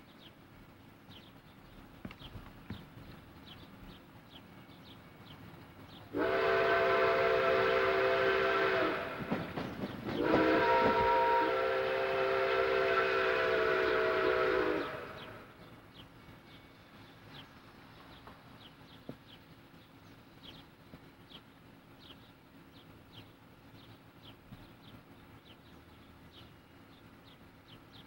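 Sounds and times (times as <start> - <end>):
steam whistle blasts: 6.1 - 9.4, 10.2 - 15.5.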